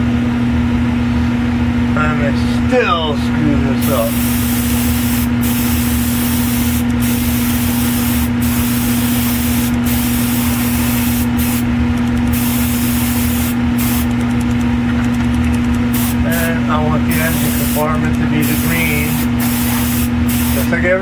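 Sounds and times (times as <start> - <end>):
motor hum: 0.0 - 21.0
airbrush hissing: 3.8 - 11.7, 12.3 - 14.1, 15.9 - 16.4, 17.1 - 20.7.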